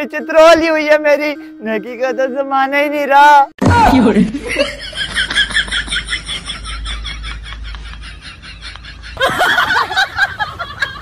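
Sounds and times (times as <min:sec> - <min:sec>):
person laughing: 0:03.8 - 0:11.0.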